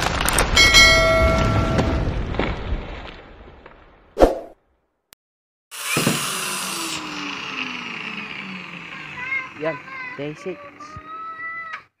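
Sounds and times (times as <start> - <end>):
whoosh and hit effect: 4.2 - 4.6.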